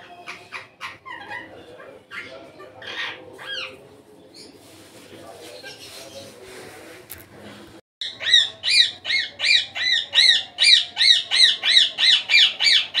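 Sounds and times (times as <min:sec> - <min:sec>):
parakeet calling: 0:08.0 - 0:13.0.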